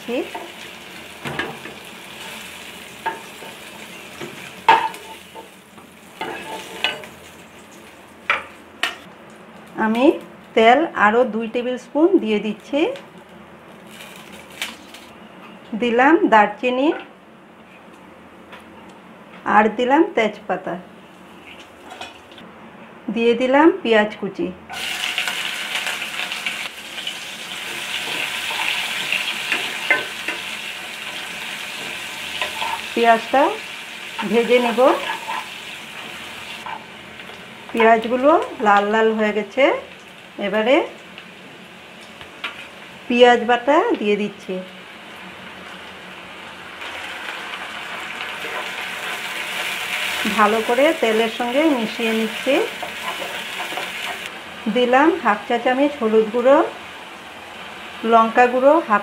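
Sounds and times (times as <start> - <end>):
hot oil sizzling: 0.0 - 9.1, 13.7 - 15.1, 24.7 - 59.0
spatula scraping pan: 6.2 - 7.1, 31.8 - 33.0, 34.2 - 35.6.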